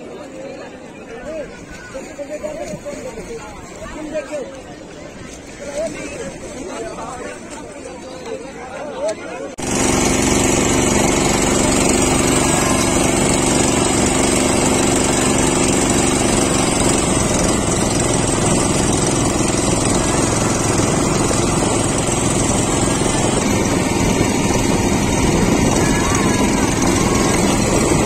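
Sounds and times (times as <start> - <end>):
choppy river water: 0.0 - 28.0
small boat engine running: 0.0 - 28.0.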